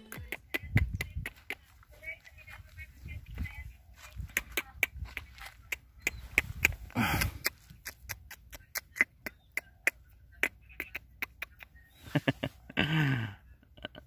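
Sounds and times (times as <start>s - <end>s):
tongue clicks: 4.1s - 11.9s.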